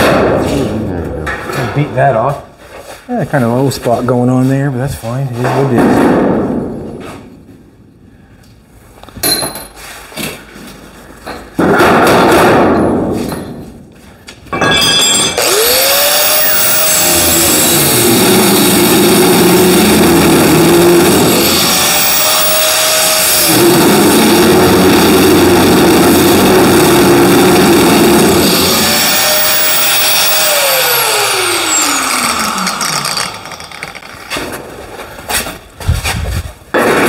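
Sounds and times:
angle grinder grinding metal: 14.7 - 34.7.

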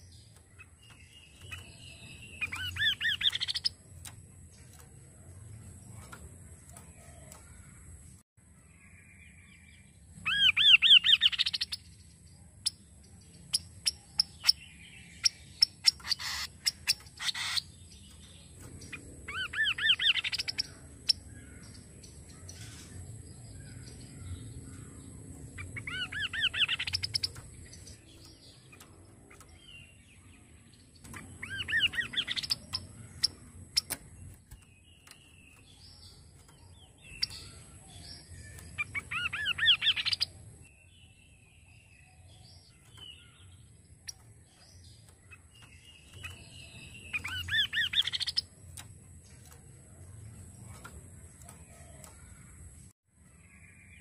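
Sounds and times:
light clicks: 31.0 - 40.3.

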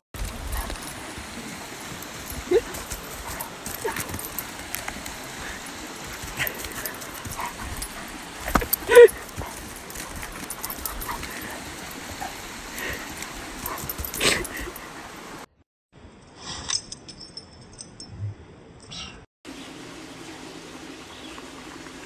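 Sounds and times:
footfalls on leafy trail: 0.2 - 11.9
leaves rustling: 0.2 - 15.4
dog whimpering and yipping: 8.6 - 9.6.

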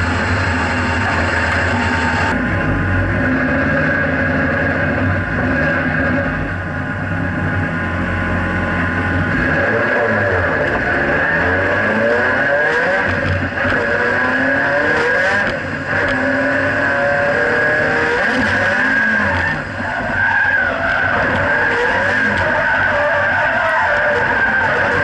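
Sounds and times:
car engine revving: 0.0 - 25.0
tyre squeal: 18.0 - 25.0.

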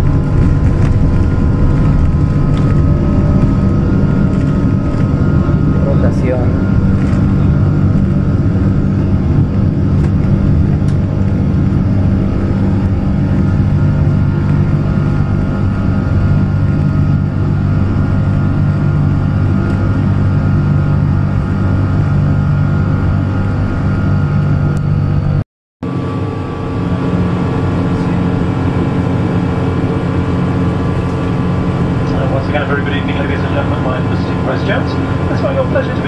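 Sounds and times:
jet engine and airflow drone: 0.0 - 36.0.

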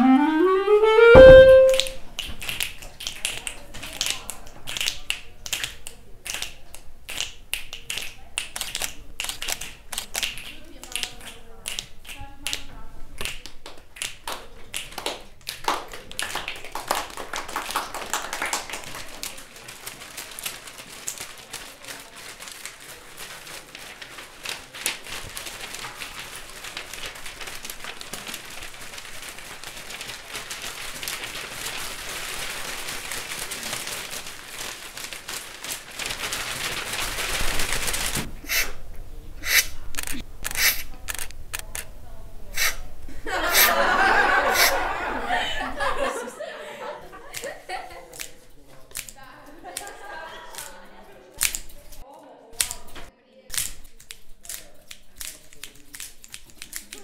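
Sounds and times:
taps and clicks: 0.0 - 2.0
crackly rustling: 18.7 - 42.0.

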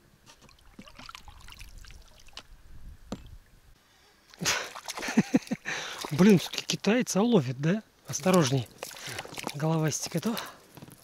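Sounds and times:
small water splashes: 0.4 - 2.5, 4.3 - 6.9, 8.1 - 10.7
water trickling and dripping: 0.4 - 2.5, 4.3 - 6.9, 8.1 - 10.6.

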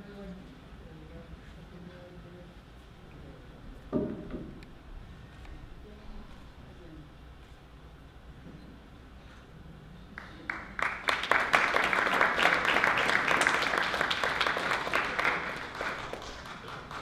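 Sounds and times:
audience applauding: 10.2 - 17.0.

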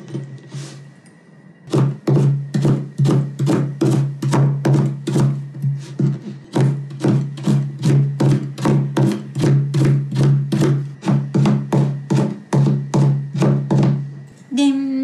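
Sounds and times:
knife chopping on plastic board: 1.7 - 14.1.

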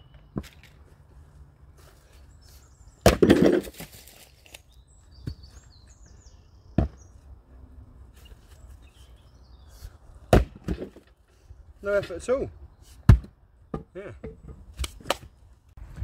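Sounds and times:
axe splitting log: 3.0 - 4.0, 10.3 - 11.0, 13.0 - 13.3.

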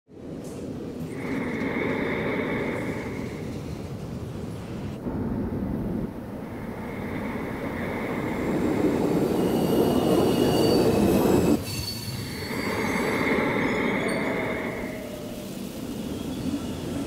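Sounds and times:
electric train rumbling on rails: 0.1 - 17.0
train wheel squeal: 7.8 - 17.0.

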